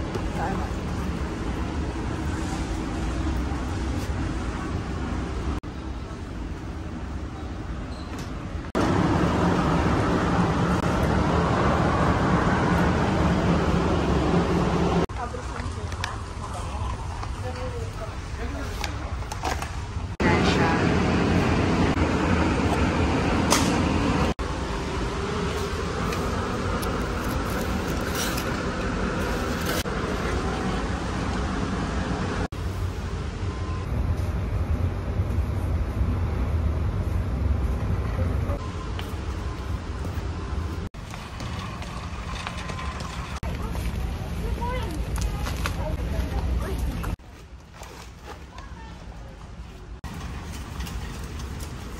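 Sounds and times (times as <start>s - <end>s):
shopping cart rolling on concrete: 25.4s - 30.8s, 41.0s - 47.1s.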